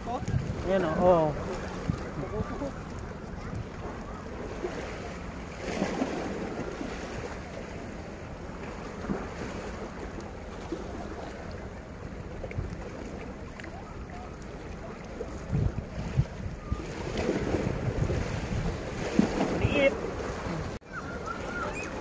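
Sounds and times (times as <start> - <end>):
wind on microphone: 0.0 - 4.8, 14.8 - 22.0
sea water washing against rocks: 0.0 - 22.0.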